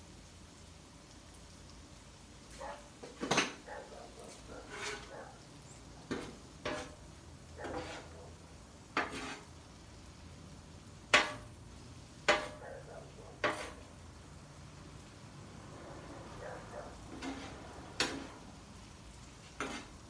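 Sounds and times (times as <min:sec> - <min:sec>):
metal spatula scraping on griddle: 0:02.9 - 0:10.0, 0:11.0 - 0:11.6, 0:12.2 - 0:14.0, 0:16.9 - 0:20.0.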